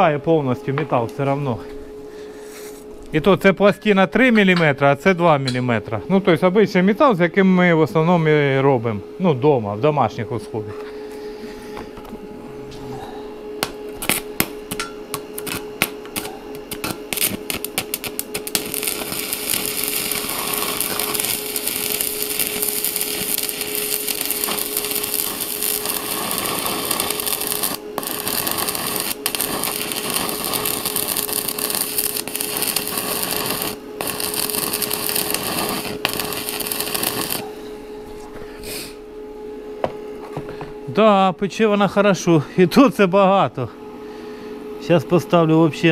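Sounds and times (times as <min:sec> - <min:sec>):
arc welding crackle and sizzle: 0:13.6 - 0:39.0.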